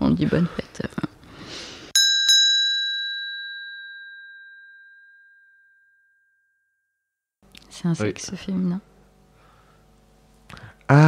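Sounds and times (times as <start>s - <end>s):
bell-like ding: 2.0s - 7.0s.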